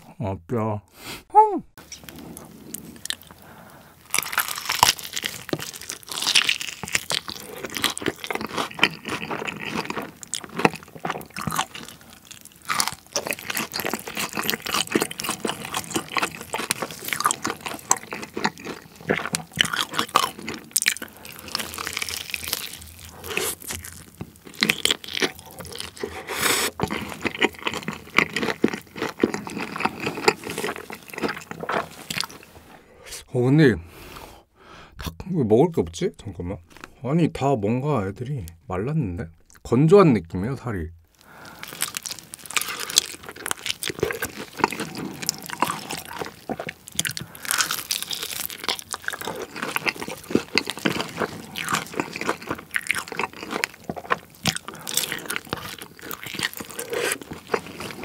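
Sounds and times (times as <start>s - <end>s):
crunchy chewing of fried chicken: 1.8s - 32.8s, 41.1s - 58.0s.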